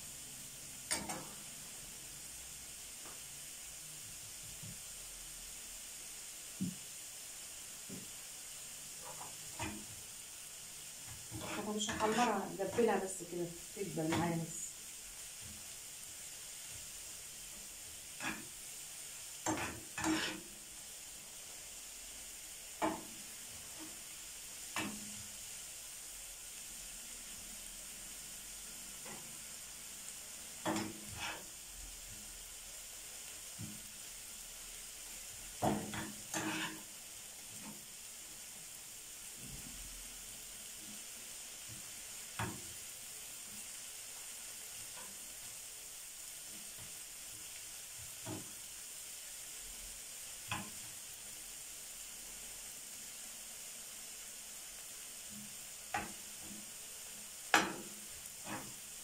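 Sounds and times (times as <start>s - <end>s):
onions sizzling in a frying pan: 0.0s - 59.0s
spoon scraping and knocking pan: 0.8s - 1.5s, 9.0s - 10.0s, 11.0s - 13.3s, 13.9s - 14.6s, 17.9s - 18.6s, 19.4s - 20.6s, 22.8s - 24.0s, 24.7s - 25.4s, 29.0s - 29.5s, 30.6s - 31.5s, 35.6s - 37.9s, 41.7s - 42.8s, 48.0s - 48.6s, 50.5s - 50.9s, 57.5s - 58.9s.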